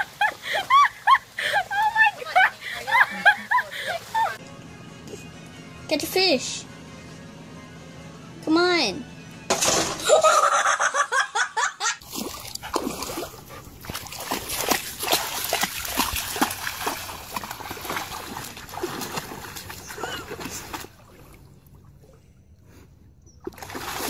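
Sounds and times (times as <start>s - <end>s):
dog splashing through water: 12.0s - 21.4s, 23.5s - 24.0s.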